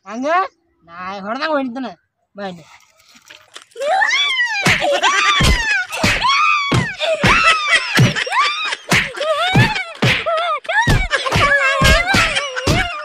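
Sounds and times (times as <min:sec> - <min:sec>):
man crying and wailing: 0:03.8 - 0:13.0.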